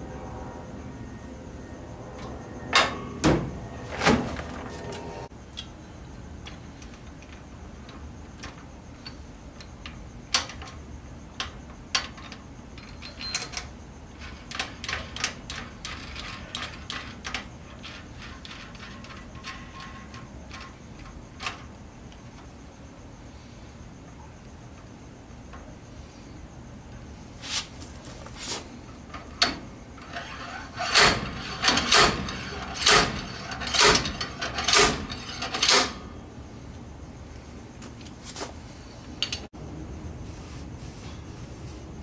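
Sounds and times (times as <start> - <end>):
metal clanks and clicks: 29.1 - 36.1.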